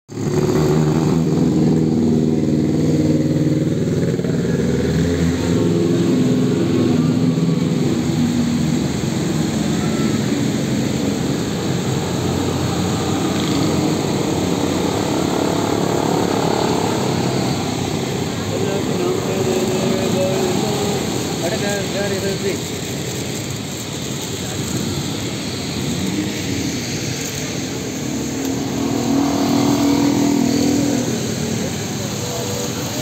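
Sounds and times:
falling rain: 0:00.1 - 0:33.0
motorcycle engine: 0:00.1 - 0:33.0
tyres hissing on wet road: 0:00.1 - 0:33.0.

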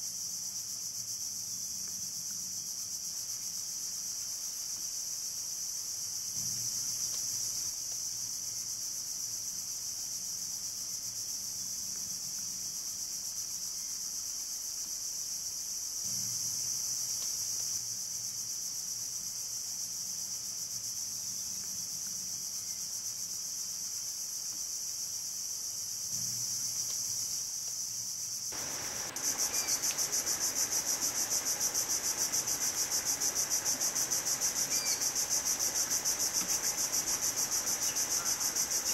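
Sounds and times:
background hiss: 0:00.0 - 0:38.9
insects chirping: 0:00.0 - 0:38.9
pulsing insect trill: 0:25.2 - 0:38.9.

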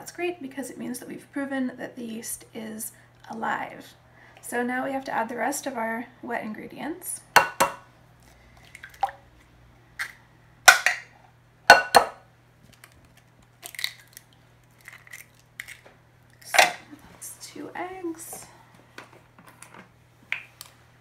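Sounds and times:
eggshell knocking on hard edge: 0:07.4 - 0:07.8
eggshell crackling: 0:11.7 - 0:17.0.

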